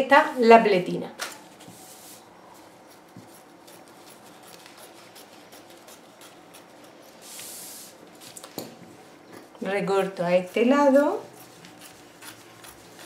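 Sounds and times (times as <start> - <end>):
scissors snipping fabric: 2.9 - 6.9, 10.4 - 13.0.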